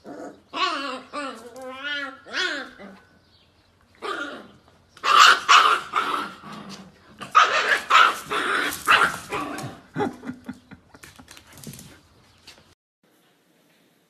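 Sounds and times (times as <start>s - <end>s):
dogs barking: 4.0s - 6.5s, 7.2s - 10.2s.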